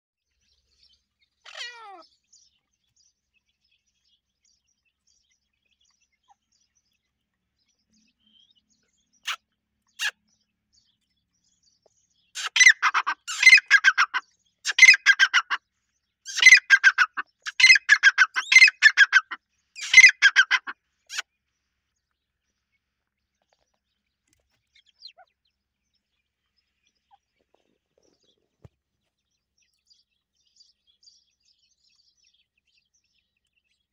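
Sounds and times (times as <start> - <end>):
francolin calling: 12.4 - 15.6, 16.3 - 21.2.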